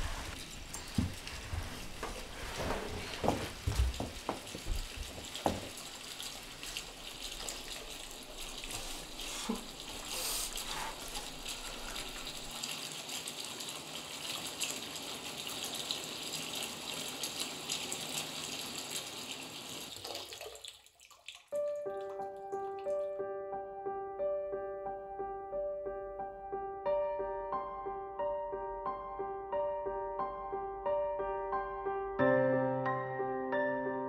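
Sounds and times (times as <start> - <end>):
tap running into a sink: 0.7 - 9.6.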